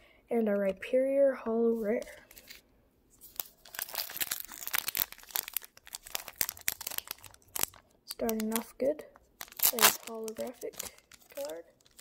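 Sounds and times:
foil wrapper crinkling and tearing: 3.2s - 12.0s.

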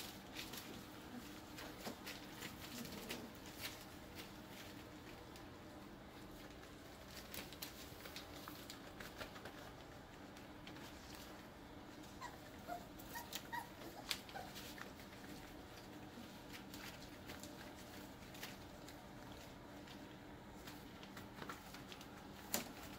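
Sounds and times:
faint scuffling and clicks: 0.0s - 22.9s
puppies whimpering and squeaking: 12.0s - 15.4s.

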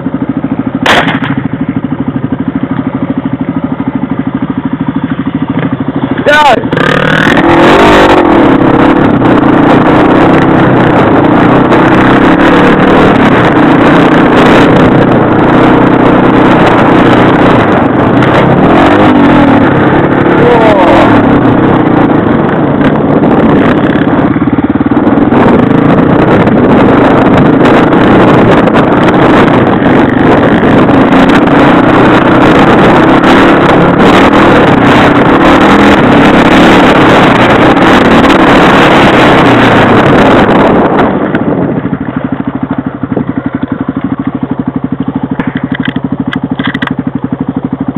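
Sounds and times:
motorcycle engine revving: 0.0s - 47.9s.

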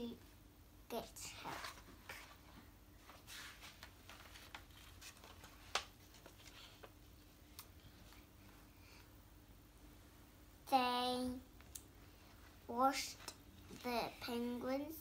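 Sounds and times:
faint room hum: 0.0s - 15.0s
paper pages rustling: 1.4s - 7.4s.

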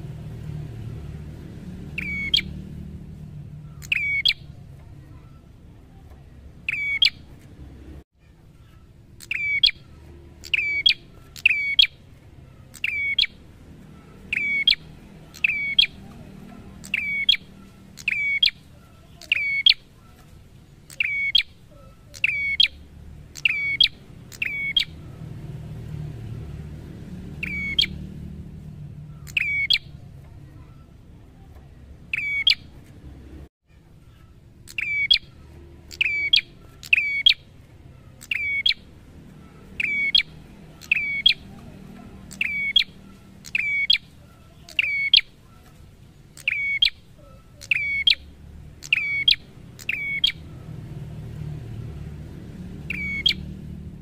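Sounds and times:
bird calling sharp notes: 1.9s - 2.6s, 3.5s - 5.5s, 6.6s - 7.3s, 8.6s - 25.2s, 27.3s - 28.1s, 29.0s - 31.0s, 32.1s - 32.8s, 34.0s - 50.6s, 52.8s - 53.6s.

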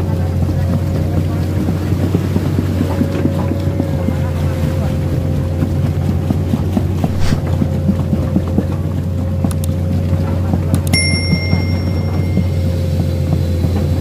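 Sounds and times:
diesel engine droning: 0.0s - 10.8s, 11.6s - 14.0s
bell ding: 10.9s - 13.2s.

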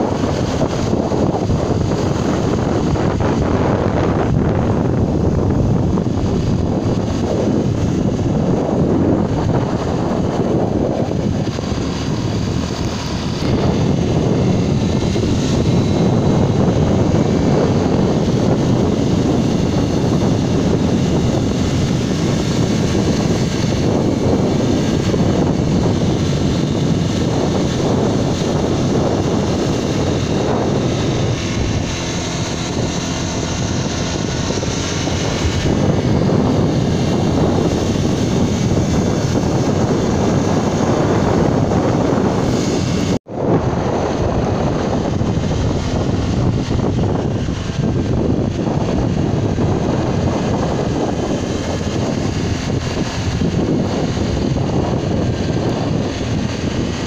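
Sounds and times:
road noise from moving vehicle: 0.0s - 57.0s
wind buffeting microphone: 0.0s - 57.0s.

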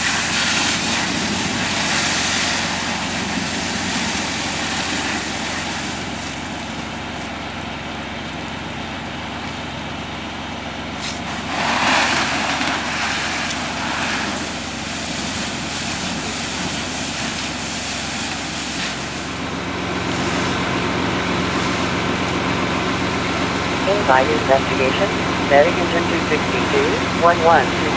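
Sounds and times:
hose spraying water: 0.0s - 6.5s, 11.0s - 19.4s
fire engine running: 0.0s - 27.9s.

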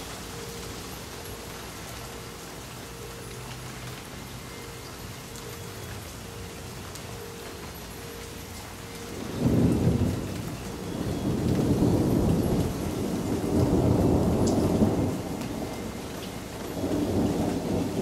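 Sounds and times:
rain falling: 0.0s - 18.0s
thunder rumbling: 9.1s - 18.0s.

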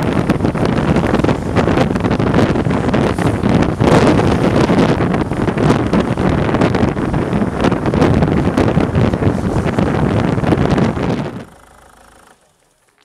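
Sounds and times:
skateboard wheels rolling on asphalt: 0.0s - 13.0s
wind buffeting microphone: 0.0s - 13.0s.

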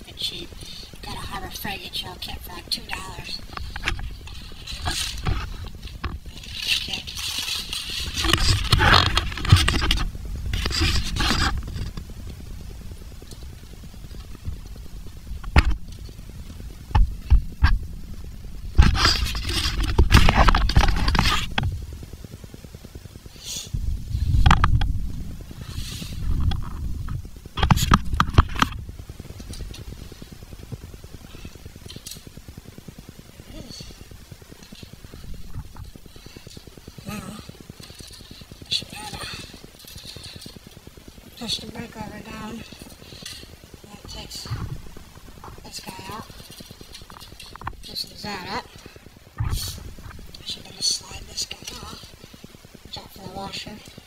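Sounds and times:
plastic case scraping and rustling: 3.4s - 12.1s.

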